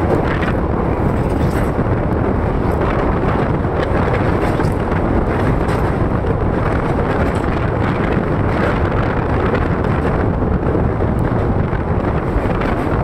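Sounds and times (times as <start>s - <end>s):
train wheel and track noise: 0.0s - 13.0s
wind buffeting microphone: 0.0s - 13.0s.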